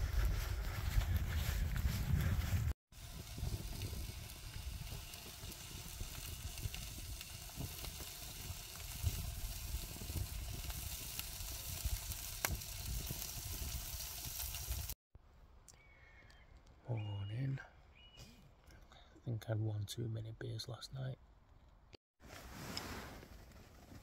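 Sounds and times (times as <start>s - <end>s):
fire crackles: 0.0s - 15.0s, 22.3s - 24.0s
sausages sizzling: 2.9s - 15.0s.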